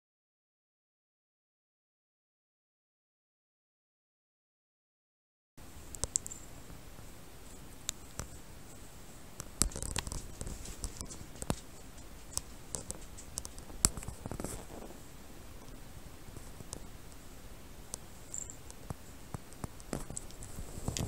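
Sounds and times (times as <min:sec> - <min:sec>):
rustling on bedding: 0:05.6 - 0:15.7, 0:19.0 - 0:21.0
collar bell tinkling: 0:18.3 - 0:18.7.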